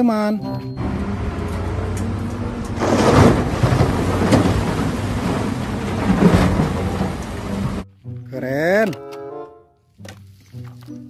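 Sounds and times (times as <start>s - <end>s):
loud rushing noise: 0.8s - 7.8s.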